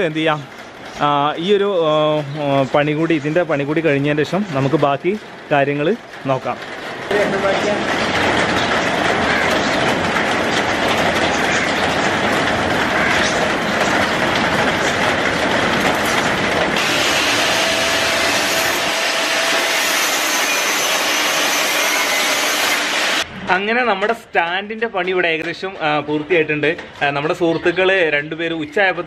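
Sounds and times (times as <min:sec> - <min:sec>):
heavy rain pouring: 0:00.0 - 0:23.3
high hiss from metal grinding: 0:16.8 - 0:23.2.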